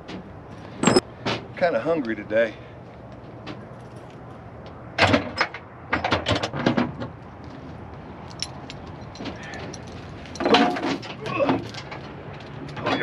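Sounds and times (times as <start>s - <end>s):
chains clanking and rattling: 8.2s - 13.0s.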